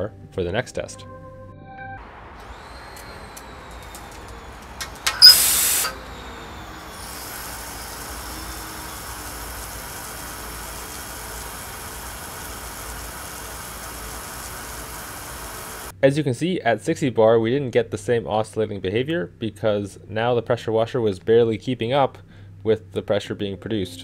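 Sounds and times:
water spraying from valve: 2.4 - 15.9
relief valve popping open with hiss: 4.1 - 6.1, 7.0 - 15.9.

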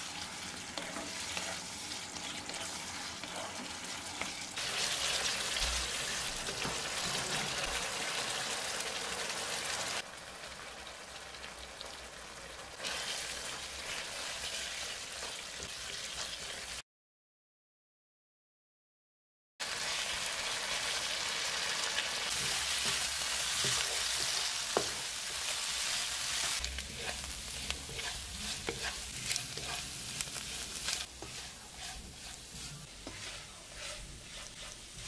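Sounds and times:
spatula scraping a wok: 0.0 - 8.0, 12.8 - 16.8, 22.3 - 35.0
meat sizzling in a wok: 0.0 - 16.8, 19.6 - 35.0.

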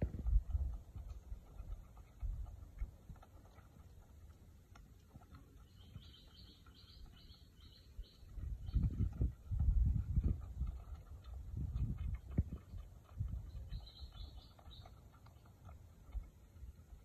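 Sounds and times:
boar chewing and snuffling: 0.0 - 17.0
bird chirping: 5.6 - 9.0, 13.5 - 15.5.

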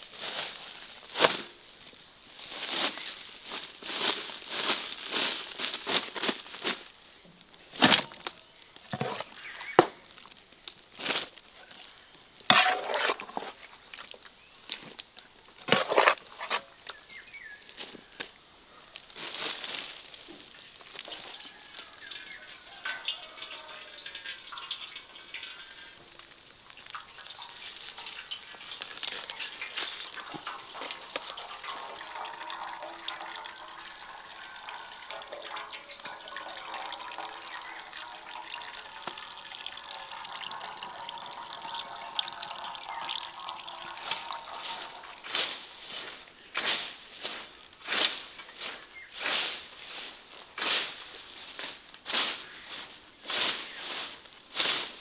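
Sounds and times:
soft rustling: 0.0 - 6.9.

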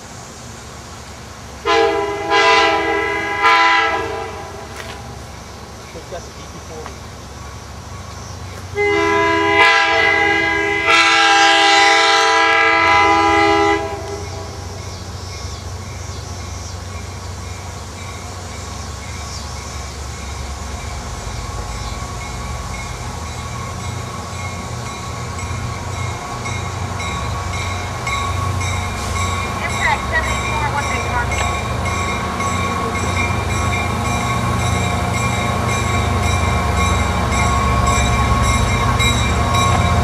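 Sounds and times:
locomotive horn blasts: 1.6 - 5.1, 8.8 - 14.6.

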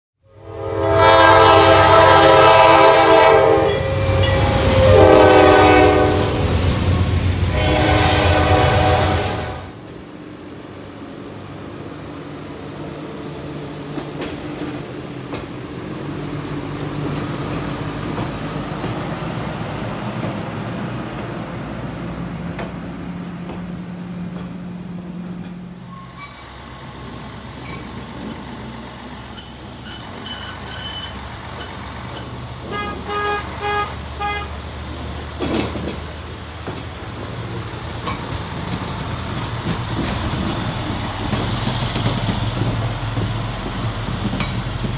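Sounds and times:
truck engine drone on rails: 0.2 - 44.9
short horn toots: 0.3 - 6.5, 7.5 - 9.8.

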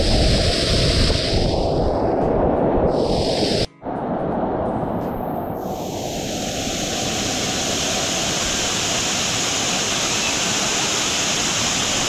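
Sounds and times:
waterfall pouring into a pool: 5.6 - 12.0.

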